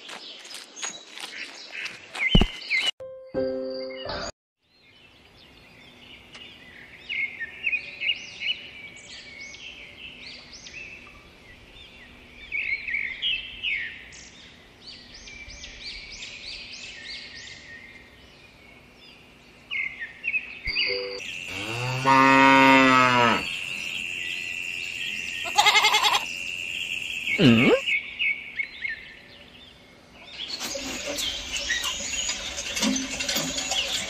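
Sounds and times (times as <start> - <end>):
small birds chirping: 22.6 - 34.0.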